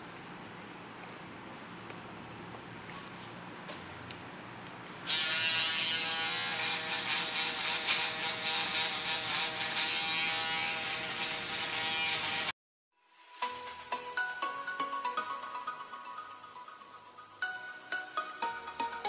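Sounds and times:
electric hair clipper buzzing: 5.1 - 12.5.

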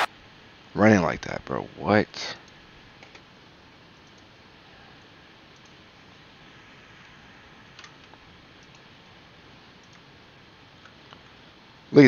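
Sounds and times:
low steady hiss: 0.0 - 12.0
computer mouse clicks: 4.0 - 4.3, 5.6 - 5.8, 8.6 - 8.9, 9.8 - 10.0.

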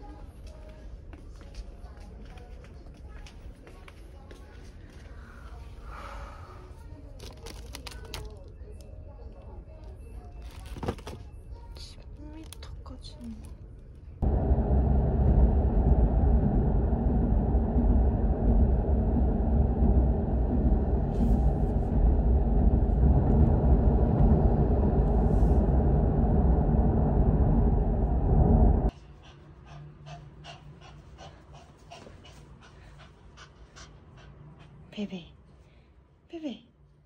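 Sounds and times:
car rumble inside cabin: 14.2 - 28.9
small dog panting: 29.0 - 35.0.

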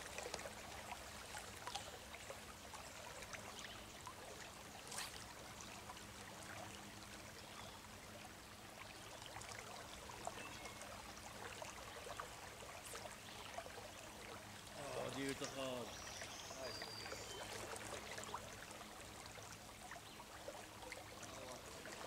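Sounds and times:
small water splashes: 0.0 - 22.0
stream water rushing: 0.0 - 22.0.

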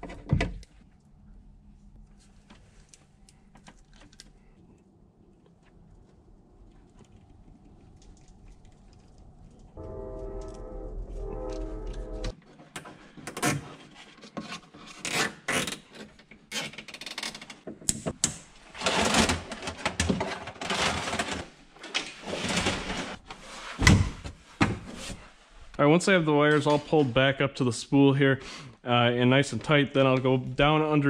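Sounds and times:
steady pitched hum: 9.7 - 12.3
rustling and scraping of plastic: 12.4 - 17.6, 18.6 - 23.8.

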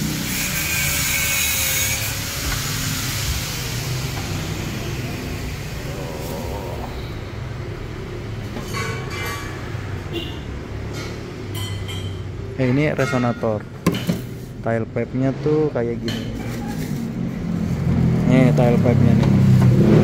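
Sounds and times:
low rumble with hiss: 2.9 - 8.4.

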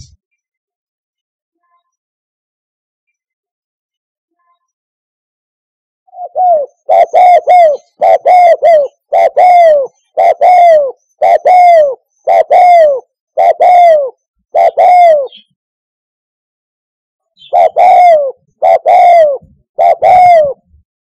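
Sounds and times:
dove cooing: 6.1 - 15.5, 17.4 - 20.8.

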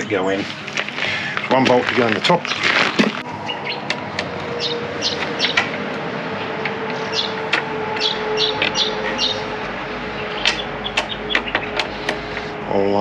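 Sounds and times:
birds chirping: 0.0 - 13.0
sharp clicks: 10.4 - 12.5.

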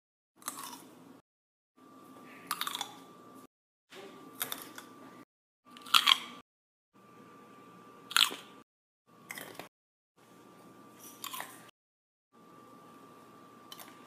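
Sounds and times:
crisp crunch of grape bites: 5.8 - 6.3.

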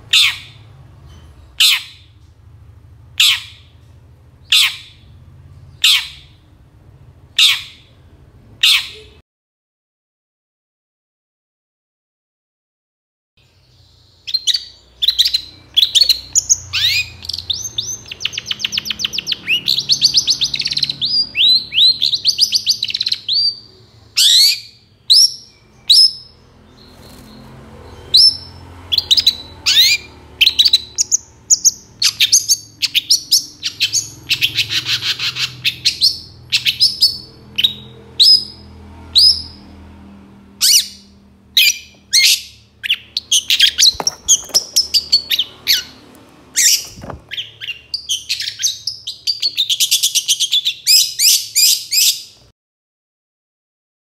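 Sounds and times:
shrike singing: 14.2 - 38.6.

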